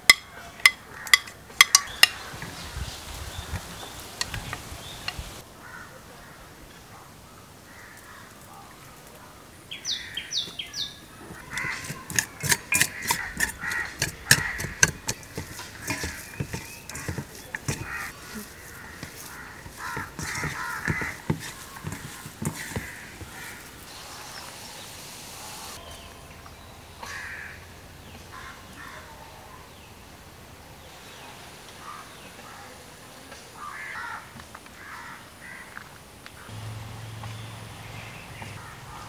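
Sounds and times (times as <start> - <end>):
crows cawing: 5.6 - 6.4, 7.7 - 8.3, 11.4 - 12.1, 12.7 - 23.8, 27.0 - 27.7, 28.3 - 29.1, 33.6 - 35.8.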